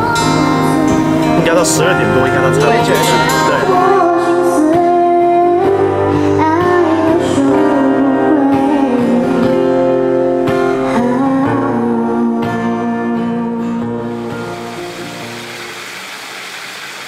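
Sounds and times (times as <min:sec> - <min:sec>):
woman singing: 0:00.0 - 0:01.4, 0:02.5 - 0:09.9, 0:10.5 - 0:14.1
acoustic guitar: 0:00.0 - 0:17.0.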